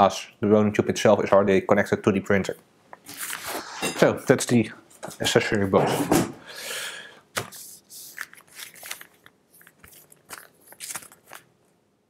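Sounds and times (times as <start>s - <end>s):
plastic wrapping crinkling: 8.0s - 11.8s.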